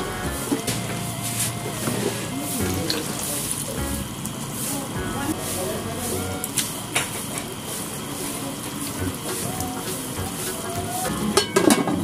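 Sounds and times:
food simmering in a wok: 6.4 - 12.0.

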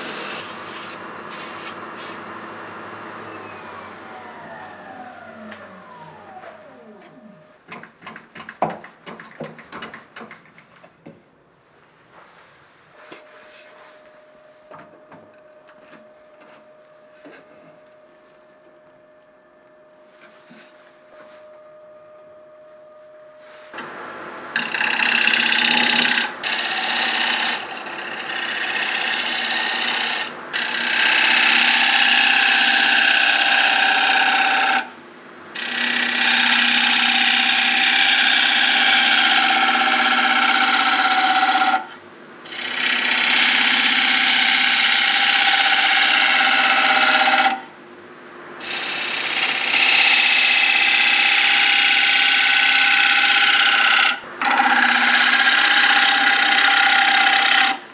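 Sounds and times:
wood being cut or sanded: 0.0 - 2.3, 3.4 - 7.1, 24.6 - 34.9, 35.6 - 47.7, 48.6 - 57.8
power tool motor hum: 3.3 - 7.5.

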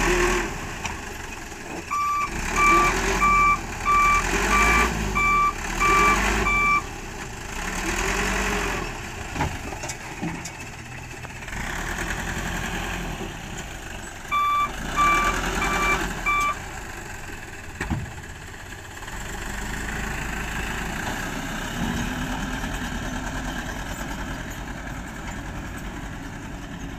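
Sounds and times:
truck engine revving: 0.0 - 1.1, 1.8 - 9.3, 11.4 - 17.0
reversing beeper: 1.9 - 6.9, 14.3 - 16.6.

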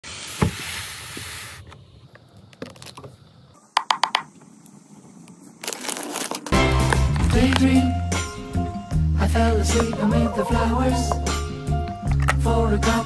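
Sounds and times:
cardboard box rustling: 5.6 - 7.6.

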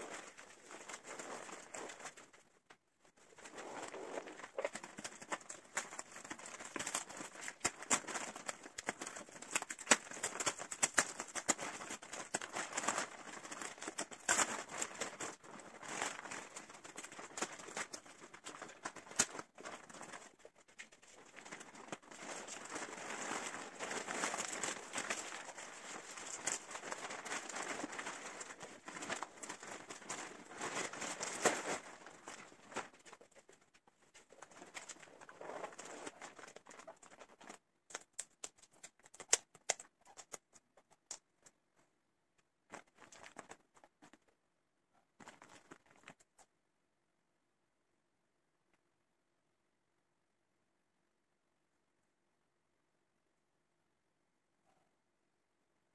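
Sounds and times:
plastic wrapping crackling: 0.0 - 41.6, 42.7 - 44.3, 45.2 - 46.5.

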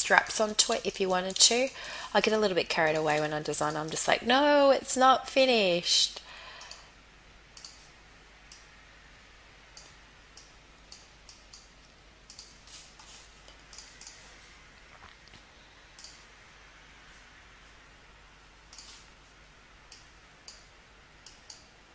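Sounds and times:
low steady hum: 0.0 - 21.9
computer mouse clicking: 0.6 - 1.9, 7.6 - 7.9, 9.8 - 14.3, 15.3 - 16.3, 18.7 - 19.1, 19.9 - 21.7.

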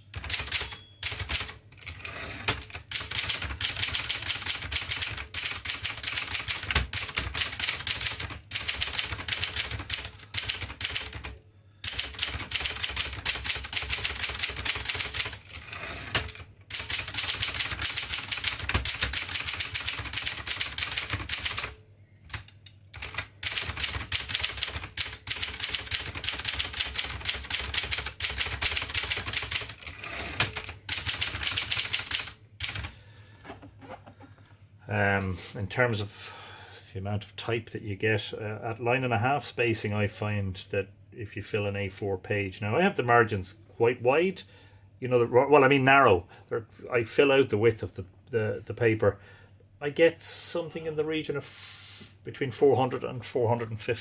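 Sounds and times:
typewriter key strikes: 0.2 - 11.3.

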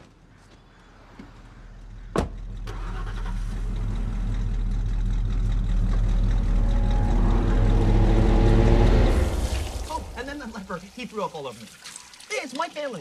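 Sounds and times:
car engine rumbling: 1.0 - 11.0.

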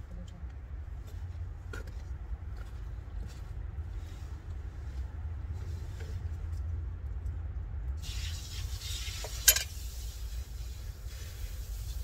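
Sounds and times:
steady hiss: 8.0 - 12.0.

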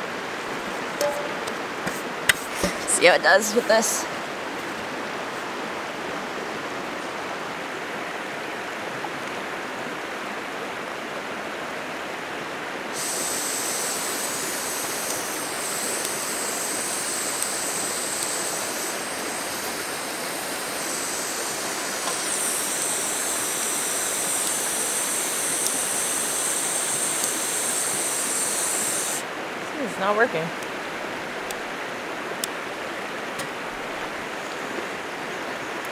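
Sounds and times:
river rushing over rocks: 0.0 - 28.0
gas hissing from stove: 12.9 - 29.2.

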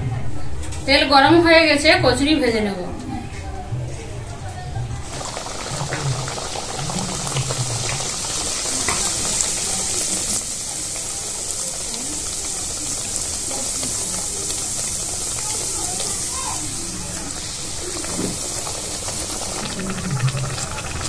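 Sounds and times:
deep-frying sizzle: 4.9 - 21.0
oil crackles: 5.0 - 21.0.

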